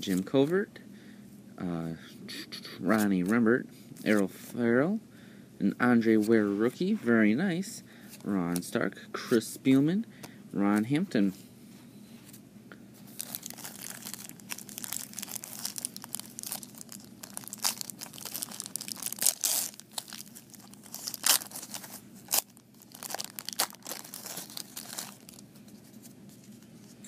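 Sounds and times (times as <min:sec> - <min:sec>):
cards rustling: 0:13.0 - 0:27.0
plastic wrapper crinkling: 0:13.1 - 0:26.1.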